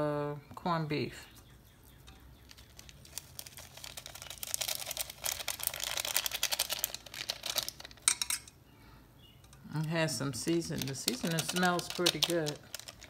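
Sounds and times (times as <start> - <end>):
seeds pattering on meat: 1.3 - 8.0, 10.4 - 13.0
plastic packet crinkling: 1.4 - 8.3, 9.8 - 13.0.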